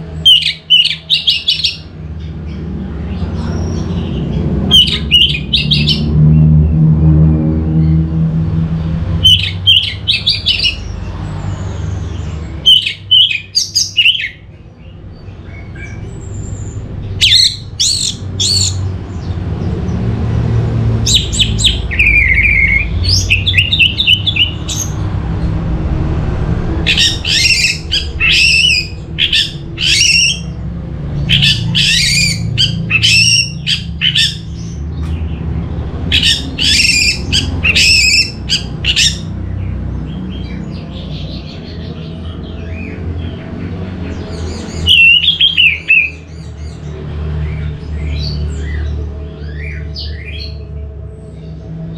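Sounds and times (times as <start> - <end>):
steady low hum: 14.4 - 44.6
thrush singing: 16.8 - 46.3.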